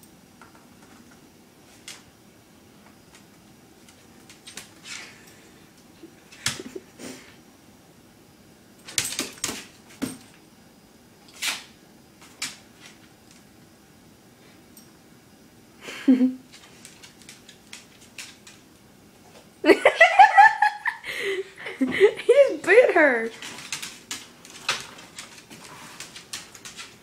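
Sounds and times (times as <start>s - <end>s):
dog claws scraping on tile: 23.3s - 27.0s.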